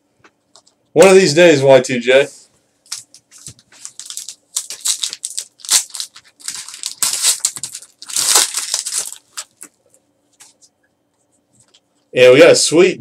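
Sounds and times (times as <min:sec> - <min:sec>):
foil wrapper crinkling and tearing: 0:02.9 - 0:09.8.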